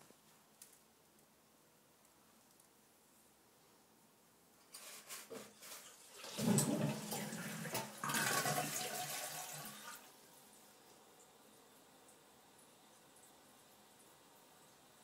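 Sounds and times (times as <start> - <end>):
cat urinating into toilet water: 5.6 - 10.1.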